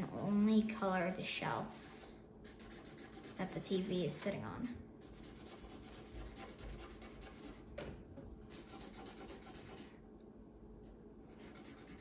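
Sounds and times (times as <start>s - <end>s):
marker strokes on paper: 1.7s - 4.2s, 11.3s - 12.0s.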